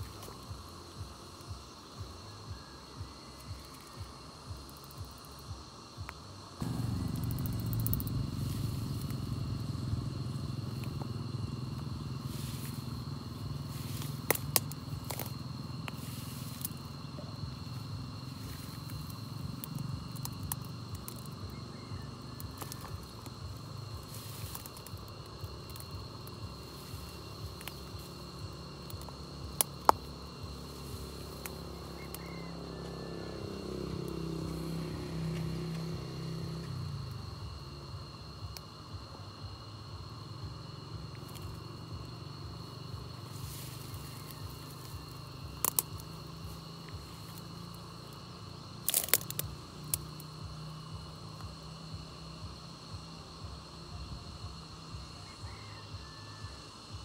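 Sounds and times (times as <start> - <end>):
low motor hum: 6.4 - 54.5
sharp clicks: 6.7 - 8.2.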